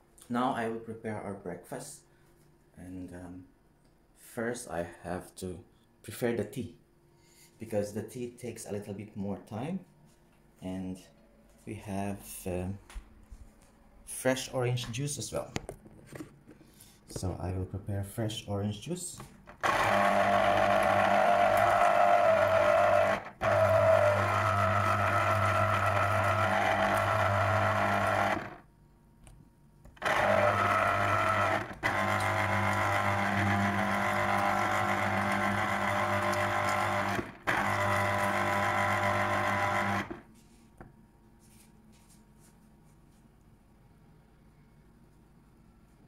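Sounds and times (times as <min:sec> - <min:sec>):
electric juicer motor humming: 0:19.5 - 0:28.6, 0:29.9 - 0:40.3.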